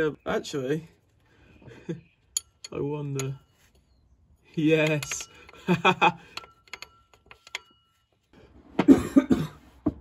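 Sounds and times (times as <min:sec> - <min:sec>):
man laughing: 0:05.6 - 0:06.4
man coughing and spluttering: 0:08.9 - 0:09.6.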